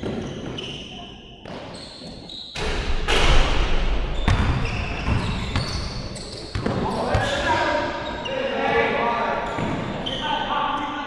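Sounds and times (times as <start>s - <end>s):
sneakers squeaking on gym floor: 0.0s - 2.8s, 4.0s - 11.0s
basketball bouncing: 4.2s - 7.3s.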